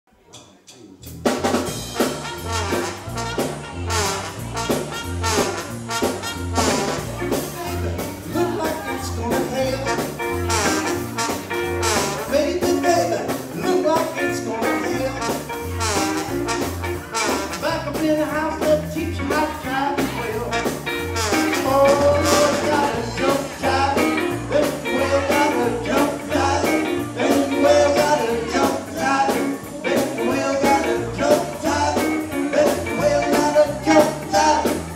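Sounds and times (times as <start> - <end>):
live soul band playing: 1.1 - 34.9
trumpet and trombone: 1.4 - 34.9
person singing: 6.6 - 11.0, 11.6 - 34.9.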